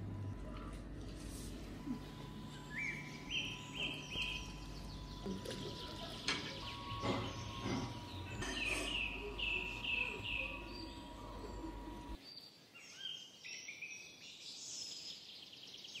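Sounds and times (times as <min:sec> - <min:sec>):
low hum: 0:00.0 - 0:12.2
faint steady high tone: 0:01.7 - 0:12.2
birds chirping: 0:01.7 - 0:14.2.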